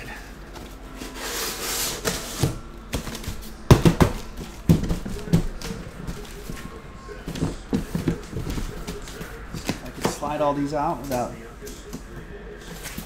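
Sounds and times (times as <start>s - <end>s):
cardboard scraping: 0.5s - 3.4s
knocks and thumps of boxes: 2.0s - 10.3s.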